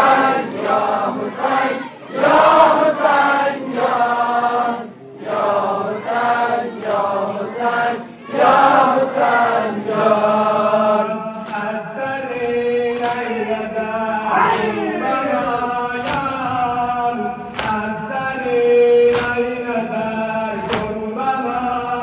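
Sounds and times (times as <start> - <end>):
man chanting a mourning lament: 10.8 - 22.0.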